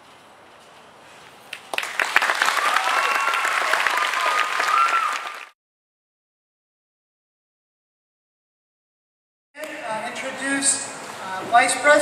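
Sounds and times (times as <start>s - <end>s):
audience applauding and cheering: 1.7s - 5.6s.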